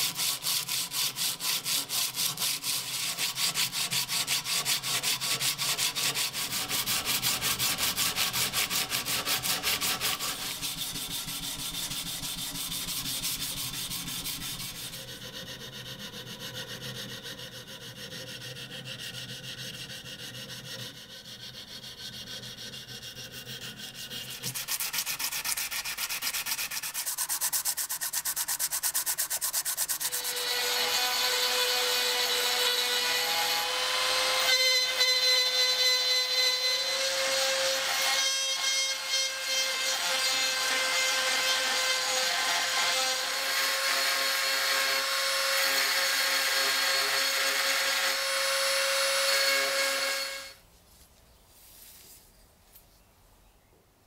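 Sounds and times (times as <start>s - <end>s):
rotary tool grinding whine: 6.5s - 33.0s
abrasive strip scraping metal blade: 18.8s - 30.8s.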